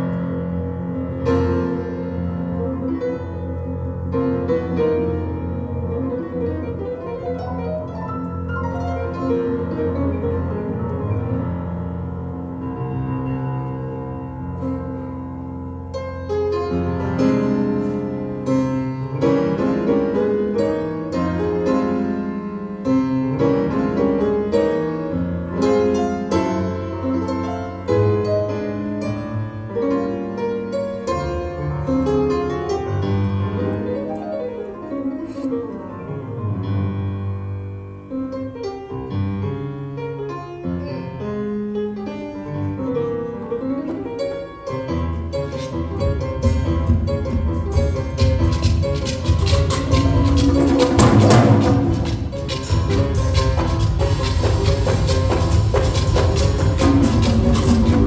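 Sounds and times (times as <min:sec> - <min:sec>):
jazz piano solo: 0:00.0 - 0:58.0.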